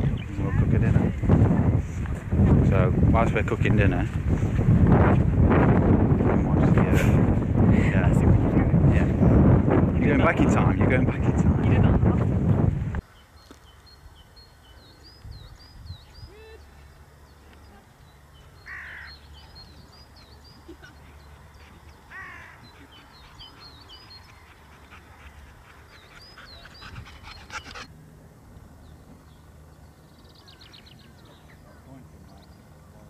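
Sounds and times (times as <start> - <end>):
small birds chirping: 13.0 - 27.9, 28.8 - 33.0
harsh bird calls: 13.1 - 27.9.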